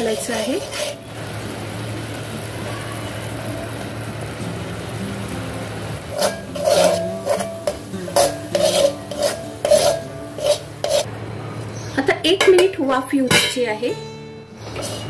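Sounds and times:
metal spoon scraping a pot: 0.0 - 1.1, 6.1 - 11.1, 14.6 - 15.0
syrup simmering with a hiss: 0.2 - 11.1.

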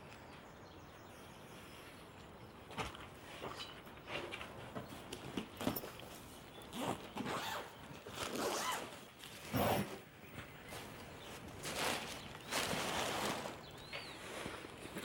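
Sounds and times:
zipper being pulled open: 6.7 - 10.0.

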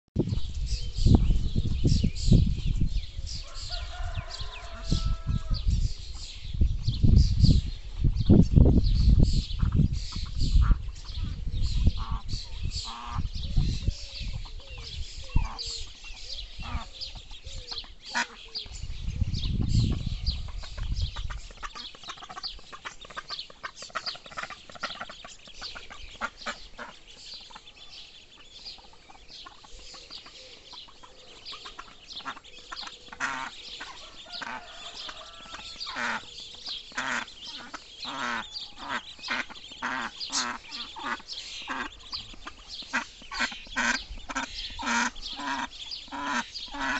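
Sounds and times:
low rumble on microphone: 0.2 - 17.7, 18.7 - 21.4
ducklings peeping: 0.2 - 46.9
ducks calling: 9.5 - 18.9, 19.6 - 46.9.

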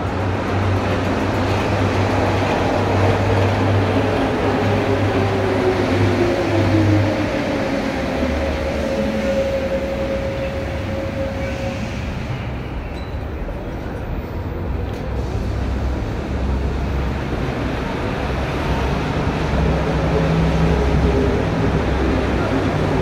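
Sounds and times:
metro train rumble: 0.0 - 23.0.

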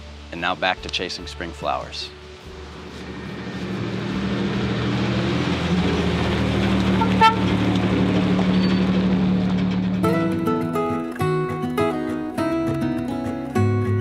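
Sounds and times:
pickup truck driving by: 2.2 - 11.2
acoustic guitar music: 8.6 - 14.0.

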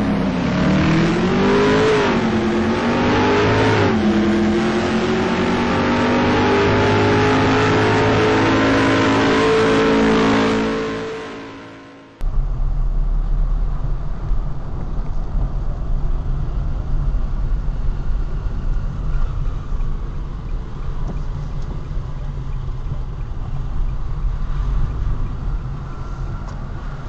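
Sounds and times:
car engine and tyre rumble: 0.0 - 27.0.

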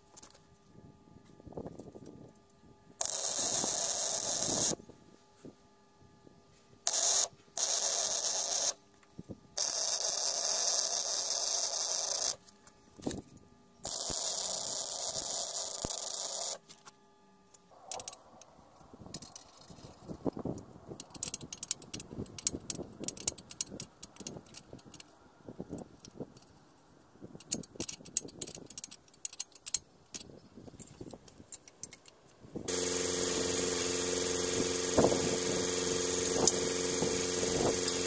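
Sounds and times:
arc welding hiss: 3.0 - 4.8, 32.7 - 38.0
wrench clicking on hose fitting: 21.0 - 25.1, 27.4 - 30.3.

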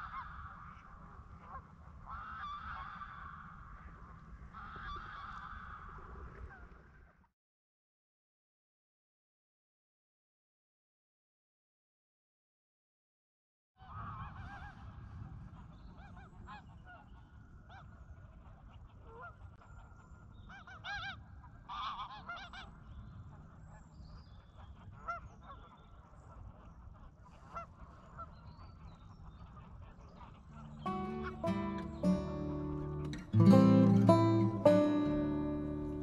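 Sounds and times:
geese honking: 0.0 - 0.8, 1.4 - 3.4, 4.6 - 5.8, 20.5 - 22.7, 29.3 - 36.0.

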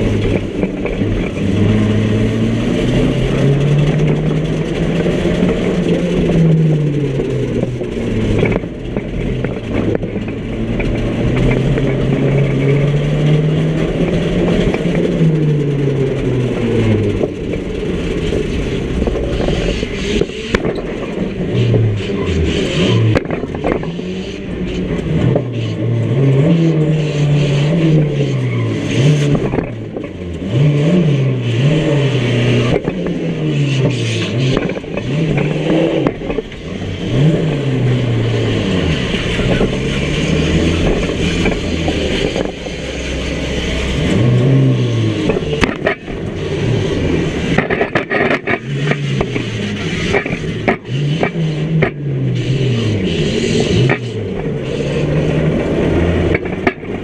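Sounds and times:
car engine revving: 0.0 - 57.0
knocks and scraping of bodywork: 17.0 - 30.8, 47.4 - 52.1.

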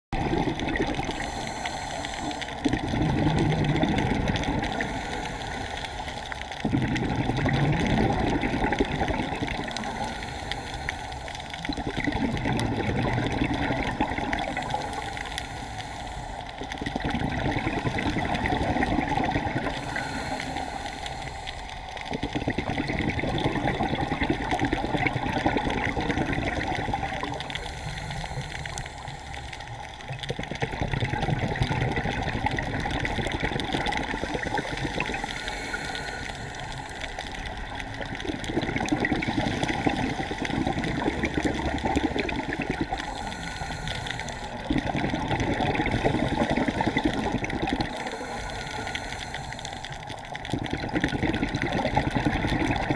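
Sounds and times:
bubbling exhalations: 0.2 - 10.8, 11.6 - 15.3, 16.6 - 28.8, 30.0 - 52.9
diver breathing through regulator: 0.9 - 6.6, 9.6 - 11.7, 14.4 - 17.0, 18.6 - 22.4, 27.2 - 30.0, 33.2 - 38.2, 38.8 - 45.0, 45.6 - 50.3.

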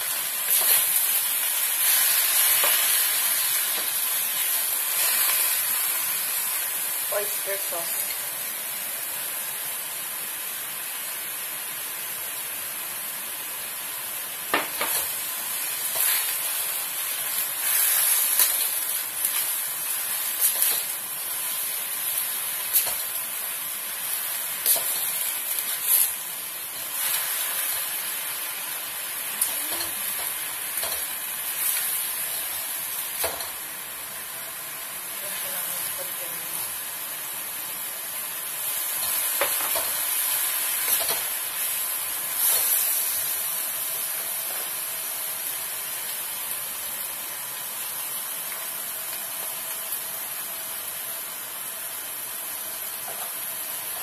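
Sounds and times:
vegetables sizzling in a wok: 0.0 - 54.0.

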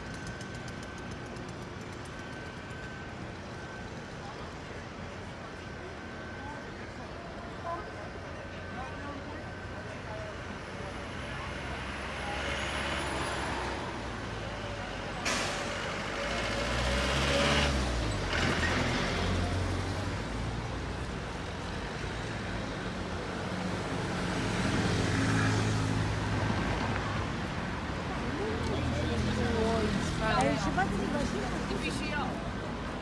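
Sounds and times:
passing vehicle engines: 8.7 - 33.0.

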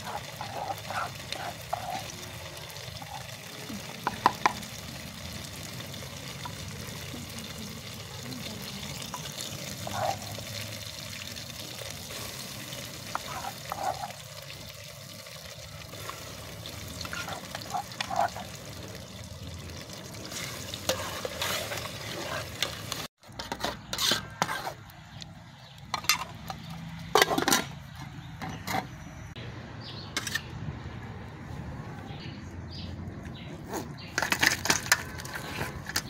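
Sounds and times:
metal spoon scraping bowl and pot: 0.0 - 3.4, 12.1 - 14.6, 16.0 - 18.7, 20.2 - 24.9, 25.9 - 29.1, 30.2 - 30.5.

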